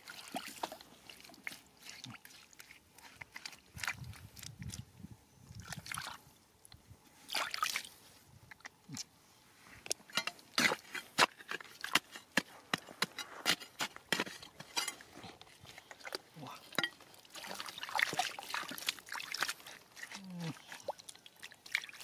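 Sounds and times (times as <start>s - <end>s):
water trickling and splashing: 0.0s - 8.8s, 15.5s - 22.0s
metal bar scraping wet rock: 10.1s - 20.1s.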